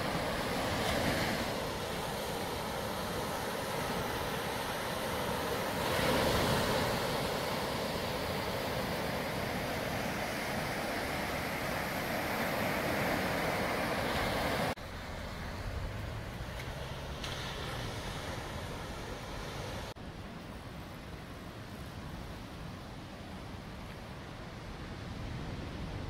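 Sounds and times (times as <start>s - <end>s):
waves breaking on beach: 0.0s - 26.0s.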